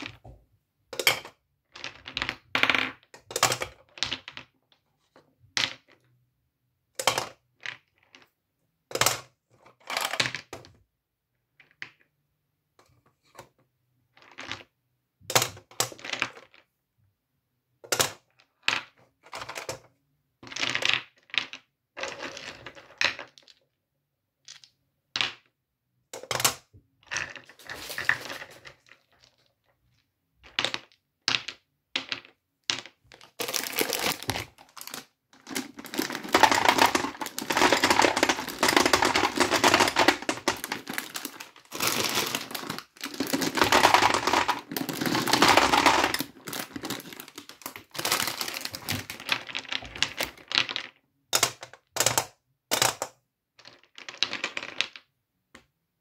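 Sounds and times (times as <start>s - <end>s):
gumballs clicking and rattling: 27.0s - 54.6s.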